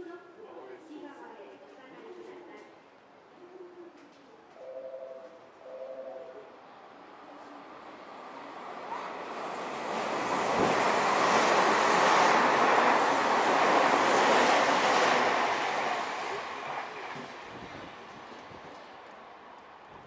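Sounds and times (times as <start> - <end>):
train wheels rumbling on rails: 8.9 - 20.0.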